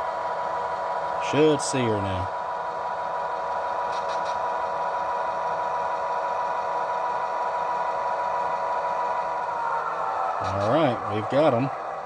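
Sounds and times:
model locomotive engine rumble: 0:00.0 - 0:12.0
constant high tone: 0:07.1 - 0:12.0.

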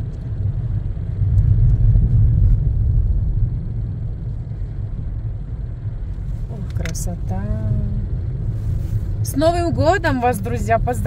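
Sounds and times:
car tyres and engine rumble: 0:00.0 - 0:11.0.

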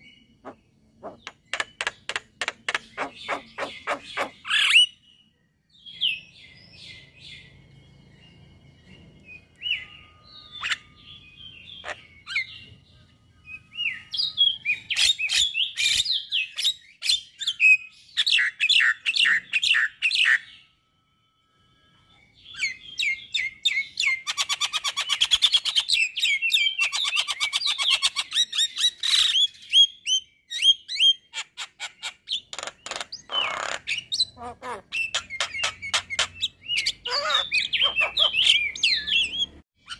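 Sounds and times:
bird whistles chirps and rattles: 0:01.0 - 0:04.9.

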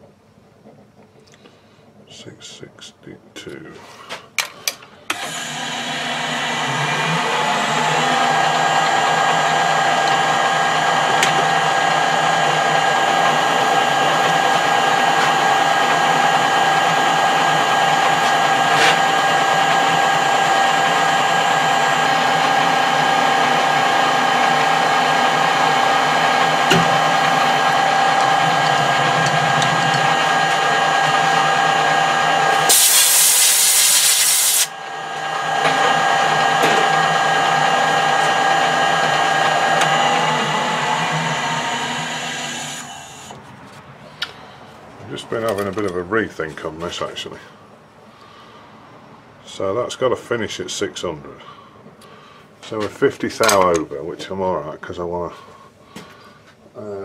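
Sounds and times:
metal lathe running with whine: 0:05.1 - 0:43.4
loud hiss burst: 0:32.6 - 0:34.7.

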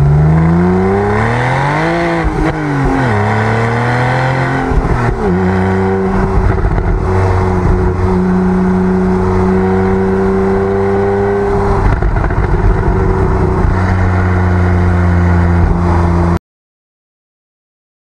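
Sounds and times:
car engine exhaust drone: 0:00.0 - 0:16.4.

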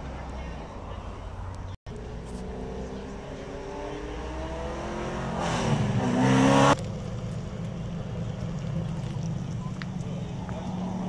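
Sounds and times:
car engine revving: 0:01.9 - 0:09.5.

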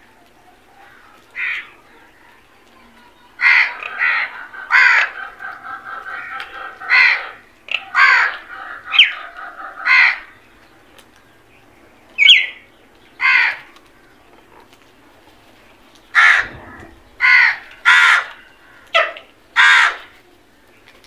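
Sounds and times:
crows cawing: 0:00.8 - 0:01.8, 0:03.4 - 0:10.6, 0:13.2 - 0:13.7, 0:16.2 - 0:18.9, 0:19.6 - 0:20.2.

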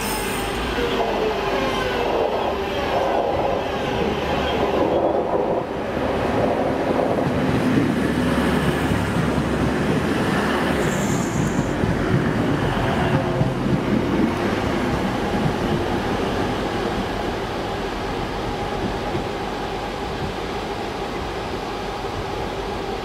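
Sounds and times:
high squeal: 0:00.0 - 0:01.5
train wheels on rails: 0:00.0 - 0:23.0.

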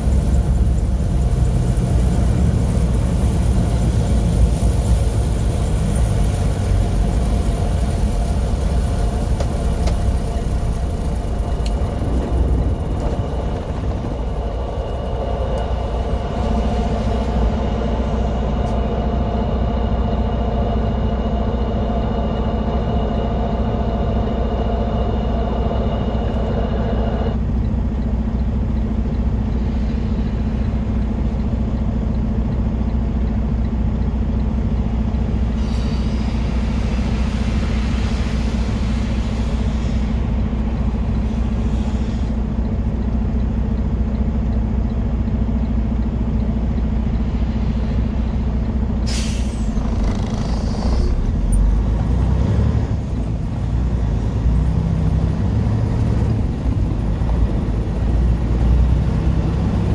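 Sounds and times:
higher whining tones: 0:00.0 - 0:28.2
steady hum: 0:00.0 - 0:33.6
engine and road rumble: 0:00.0 - 0:59.9.

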